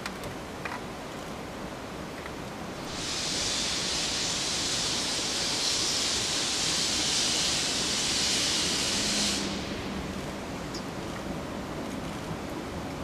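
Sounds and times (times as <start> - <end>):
steam locomotive hissing steam: 2.8 - 10.5.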